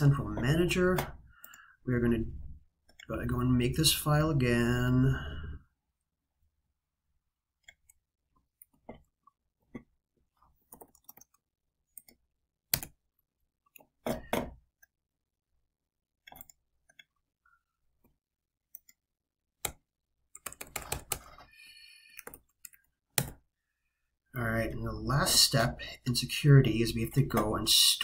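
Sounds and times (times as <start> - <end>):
keyboard typing: 10.6 - 13.0, 16.2 - 17.2, 19.6 - 21.5, 22.1 - 23.4.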